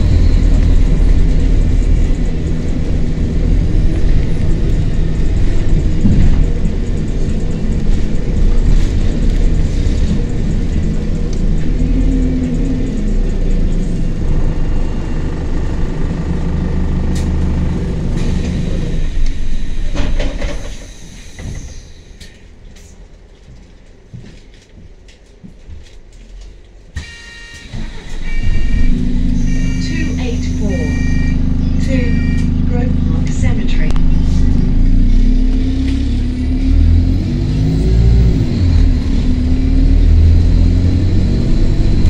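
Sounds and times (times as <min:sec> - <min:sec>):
bus diesel engine droning: 0:00.0 - 0:24.7, 0:25.9 - 0:42.0
door warning buzzer: 0:27.0 - 0:32.7.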